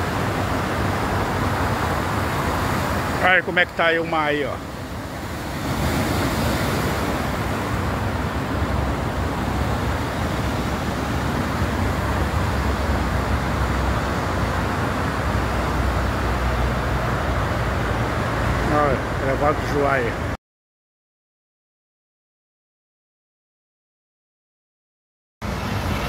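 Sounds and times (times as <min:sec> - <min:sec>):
rough sea rushing over rocks: 0:00.0 - 0:20.3.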